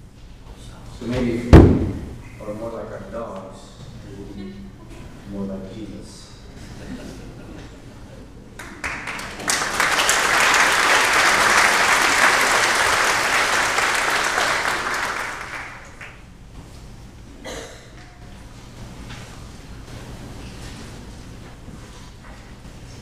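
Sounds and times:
congregation applauding: 8.6s - 16.4s.

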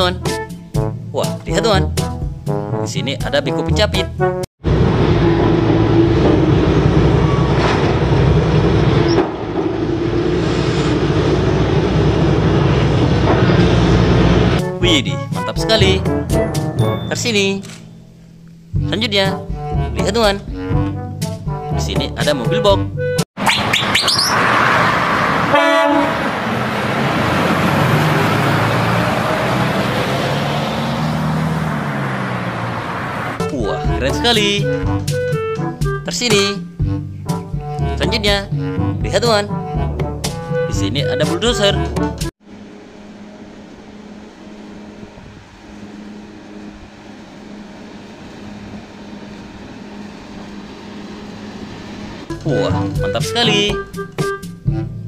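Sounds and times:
diesel engine running: 4.3s - 22.1s, 24.0s - 36.0s, 36.7s - 53.1s
heavy lorry driving past: 4.6s - 18.8s, 23.9s - 35.6s, 42.4s - 52.4s
short horn toot: 25.5s - 26.2s.

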